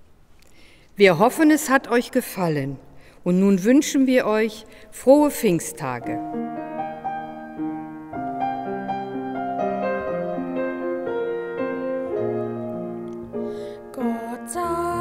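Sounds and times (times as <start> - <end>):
keyboard playing hymn chords: 6.3 - 15.0.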